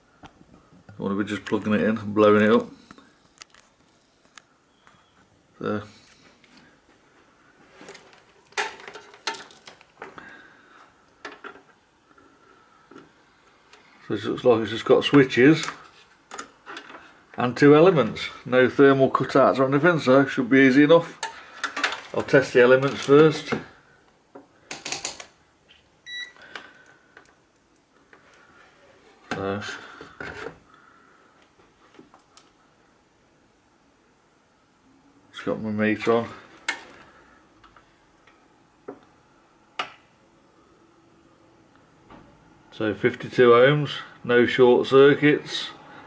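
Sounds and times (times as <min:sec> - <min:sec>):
multimeter beep: 0:26.0 - 0:26.4.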